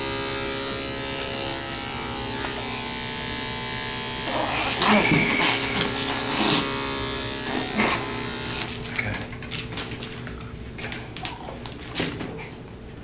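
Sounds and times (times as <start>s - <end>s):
electric clippers buzzing: 0.0s - 9.4s.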